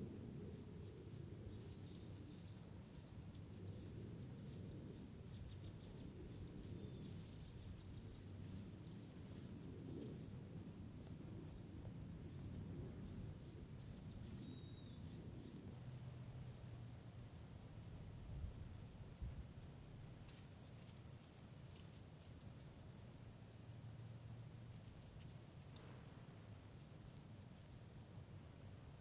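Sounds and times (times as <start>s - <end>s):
low background rumble: 0.0s - 20.3s
small birds chirping: 0.5s - 29.0s.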